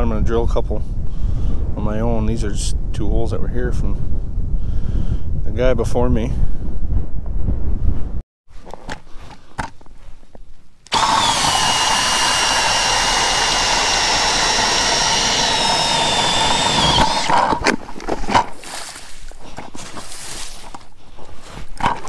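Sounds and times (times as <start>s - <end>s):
drill whining through ice: 10.9s - 17.7s.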